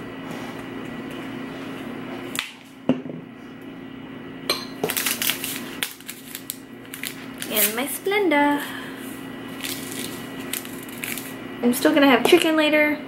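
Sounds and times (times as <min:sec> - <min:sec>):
paper packet tearing: 0:04.9 - 0:07.9, 0:09.5 - 0:11.4.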